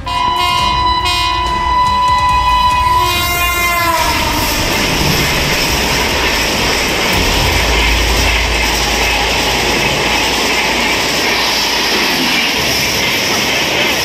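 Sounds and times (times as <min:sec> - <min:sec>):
train horn: 0:00.0 - 0:05.6
train coaches running on track: 0:00.0 - 0:14.0.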